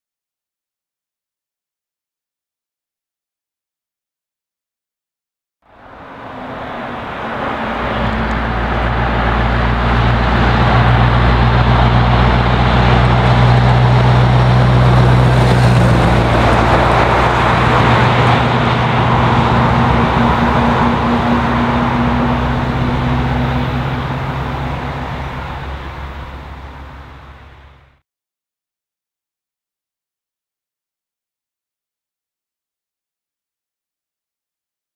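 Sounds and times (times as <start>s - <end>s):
truck diesel engine passing: 5.7s - 28.0s.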